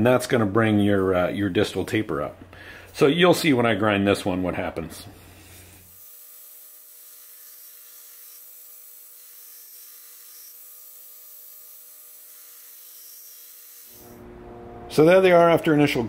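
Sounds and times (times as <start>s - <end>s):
belt grinder grinding steel: 5.4s - 14.2s.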